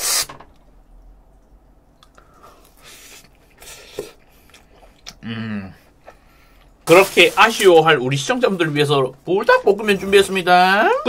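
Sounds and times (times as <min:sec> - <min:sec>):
man chewing food: 0:00.5 - 0:06.8
man humming: 0:05.2 - 0:05.8.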